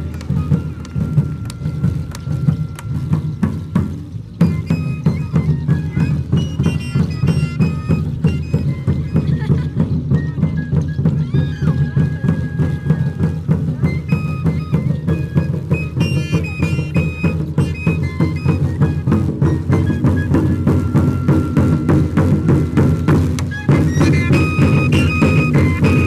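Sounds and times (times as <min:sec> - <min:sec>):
drum steady beat: 0:00.0 - 0:26.0
high melody line: 0:10.7 - 0:26.0.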